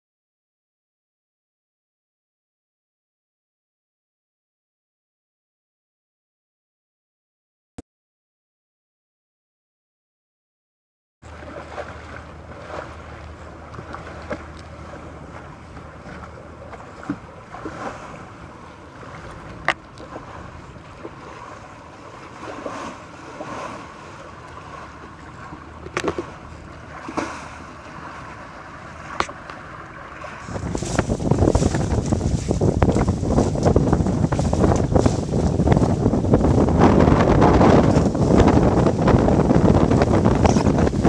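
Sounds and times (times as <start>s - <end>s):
water rushing past hulls: 11.2s - 41.0s
wind buffeting microphone: 11.4s - 41.0s.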